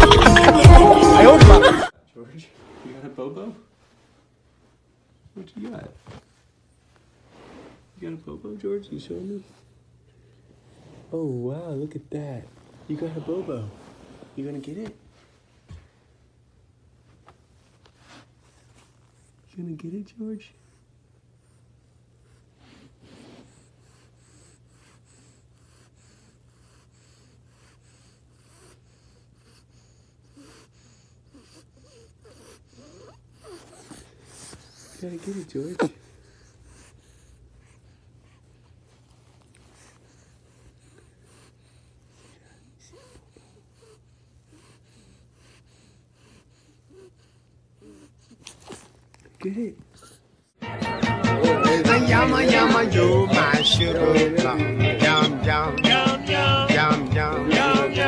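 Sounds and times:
monkey breathing and snuffling: 32.7 - 44.1.

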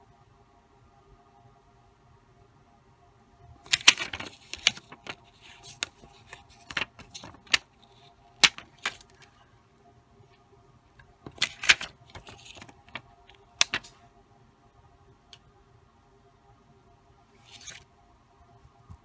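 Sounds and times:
plastic sheet clicking and crackling: 3.6 - 9.4, 11.0 - 14.0
plastic crinkling: 3.7 - 9.4, 11.2 - 14.0.

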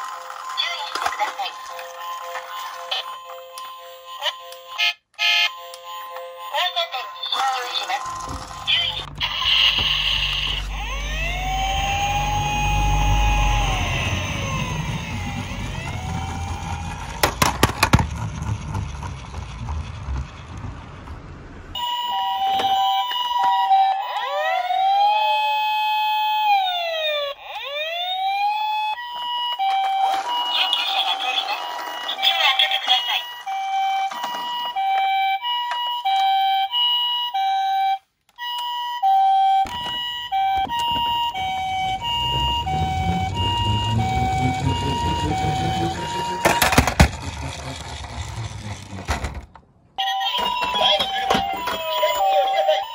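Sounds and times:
toy wheels rumbling on wood: 0.0 - 3.8, 7.4 - 21.8, 29.0 - 36.3, 39.7 - 49.7, 50.4 - 52.7
toy electronic siren: 0.0 - 18.7, 21.7 - 52.9.

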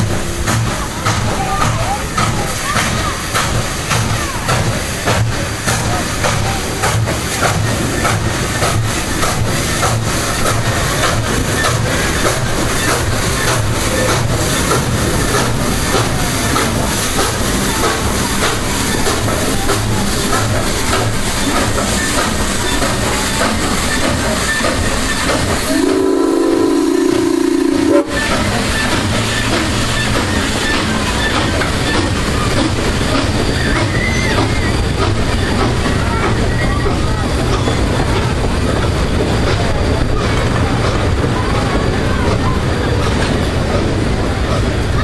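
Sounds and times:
steam locomotive chuffing: 0.0 - 45.0
train rumble and hiss: 0.0 - 45.0
steam whistle blast: 25.6 - 28.3.

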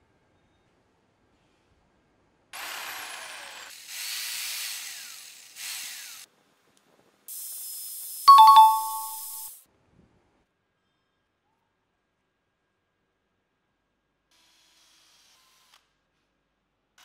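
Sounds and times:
bright two-tone chime: 8.3 - 9.5.

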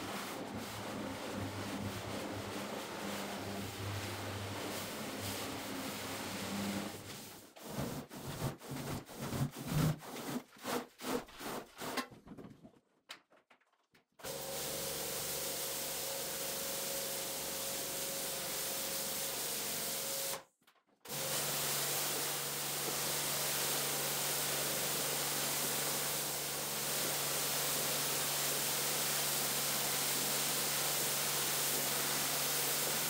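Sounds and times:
cleaning strokes on a rug: 0.0 - 12.0.

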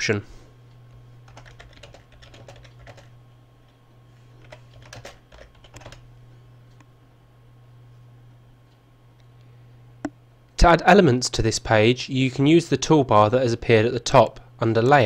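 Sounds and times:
faint low hum: 0.0 - 15.0
typing on computer keyboard: 1.3 - 3.1, 4.4 - 6.0.

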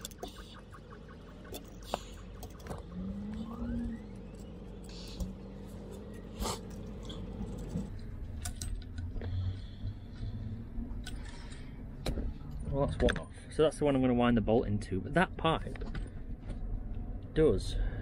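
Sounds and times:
wavering drone: 0.0 - 12.6
steady low hum: 0.0 - 18.0.

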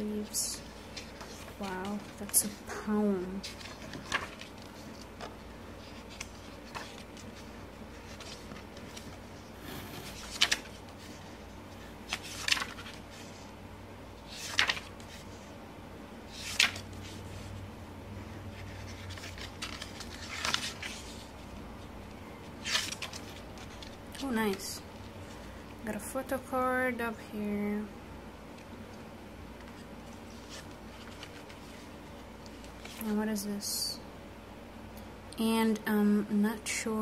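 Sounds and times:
book pages turning: 0.2 - 13.5, 14.2 - 15.5, 16.3 - 17.6, 18.5 - 21.6, 22.5 - 24.7, 29.6 - 33.1.

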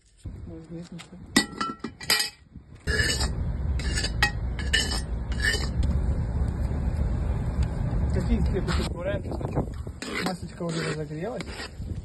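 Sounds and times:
steady low rumble: 0.2 - 10.6
metal spatula scraping pot: 2.8 - 5.8, 10.0 - 11.8.

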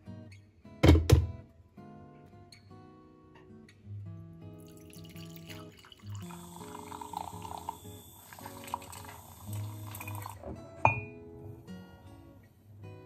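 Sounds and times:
acoustic guitar music: 0.0 - 13.0
coffee pouring into mug: 4.6 - 10.5.

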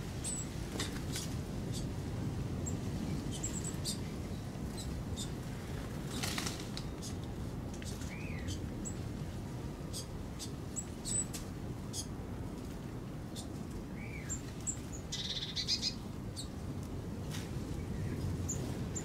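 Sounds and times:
wings fluttering: 5.7 - 7.0
small birds chirping: 13.3 - 16.6.

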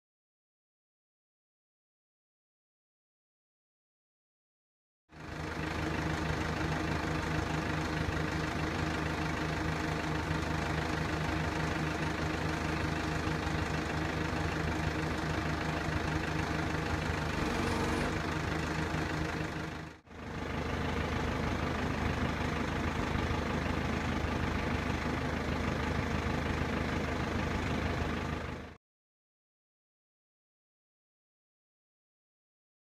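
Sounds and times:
backhoe diesel engine running: 5.1 - 28.8.

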